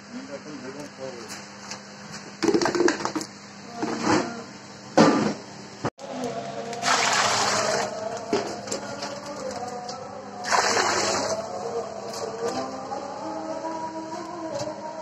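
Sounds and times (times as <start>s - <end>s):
water pouring into a metal wok: 6.8s - 7.9s, 10.4s - 11.3s.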